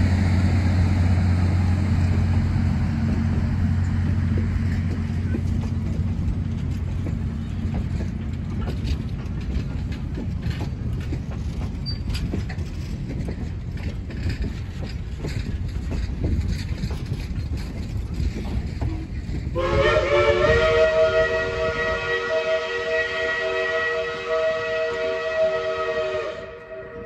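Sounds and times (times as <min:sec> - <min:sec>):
train coaches rumbling past: 0:00.0 - 0:27.0
wheel clicks over rail joints: 0:01.9 - 0:19.6
train horn chord: 0:19.6 - 0:27.0.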